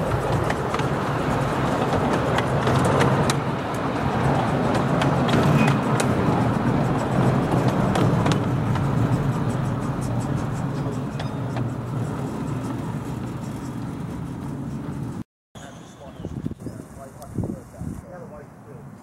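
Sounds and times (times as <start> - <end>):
train wheels rumbling on rails: 0.0 - 15.2
wheels clicking over rail joints: 0.0 - 15.2.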